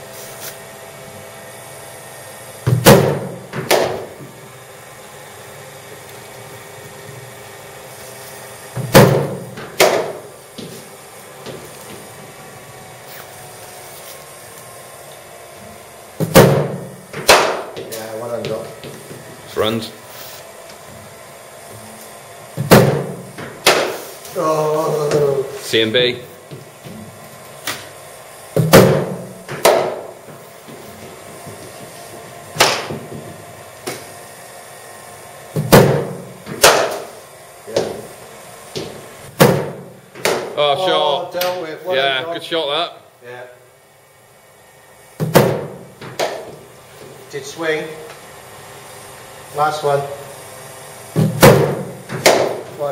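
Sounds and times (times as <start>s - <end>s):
bat striking ball: 2.7s - 4.2s, 8.8s - 10.3s, 16.2s - 17.8s, 22.6s - 24.0s, 28.6s - 30.2s, 32.6s - 33.3s, 35.6s - 37.1s, 39.4s - 40.6s, 45.2s - 46.5s, 51.2s - 52.7s
bowling machine firing ball: 2.7s - 4.2s, 8.8s - 10.3s, 16.2s - 17.8s, 22.6s - 24.0s, 28.6s - 30.2s, 35.6s - 37.1s, 39.3s - 40.6s, 45.2s - 46.5s, 51.1s - 52.7s.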